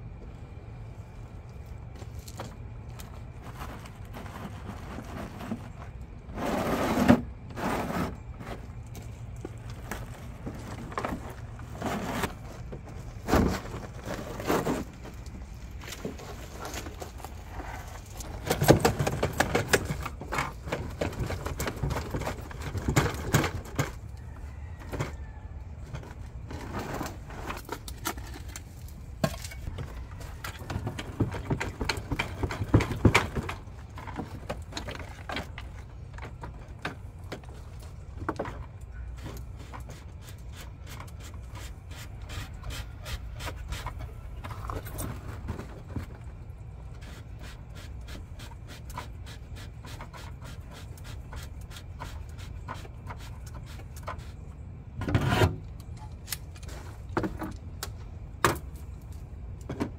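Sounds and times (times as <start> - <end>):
steady low rumble: 0.0 - 6.4.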